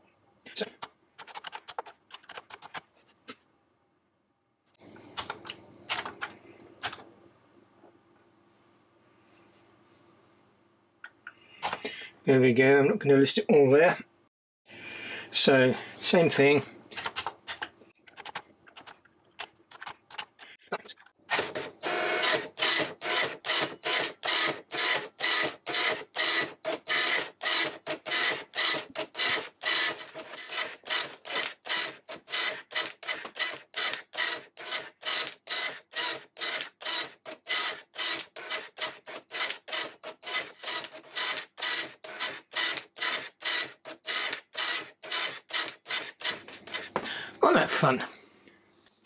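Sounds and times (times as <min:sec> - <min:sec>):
dot-matrix printer printing: 0:21.3 - 0:47.0.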